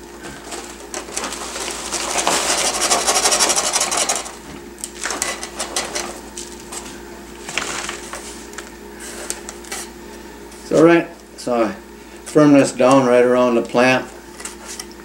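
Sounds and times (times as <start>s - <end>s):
plastic bag crinkling: 0.2s - 4.2s, 7.4s - 8.7s.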